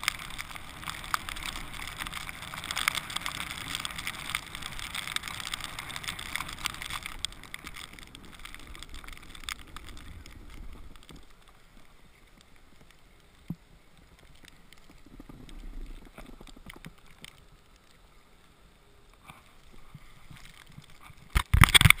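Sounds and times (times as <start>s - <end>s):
hand handling camera: 20.3s - 22.0s.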